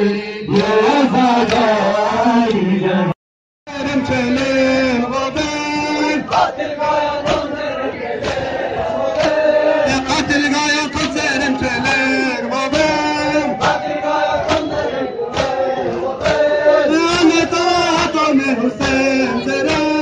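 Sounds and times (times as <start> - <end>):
men chanting a lament: 0.0 - 20.0
hands slapping chests: 8.2 - 10.4, 12.7 - 19.0.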